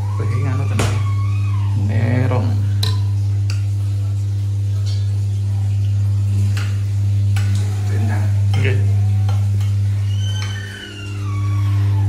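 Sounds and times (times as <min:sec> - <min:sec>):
loud low hum: 0:00.0 - 0:12.0.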